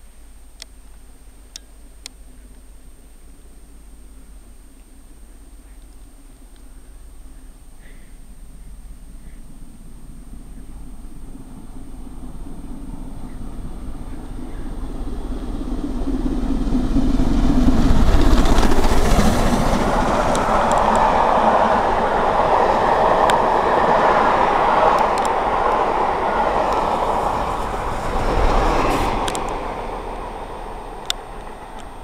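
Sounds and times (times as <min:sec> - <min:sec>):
diesel locomotive rumble: 0:01.4 - 0:32.0
steam locomotive passing: 0:08.2 - 0:32.0
train wheels clattering over rails: 0:15.3 - 0:32.0.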